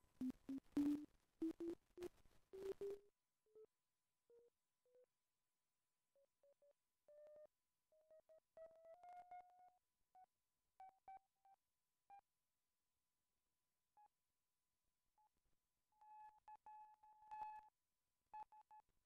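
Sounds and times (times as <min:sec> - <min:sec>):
synthesizer pure-tone blips: 0:00.2 - 0:03.0.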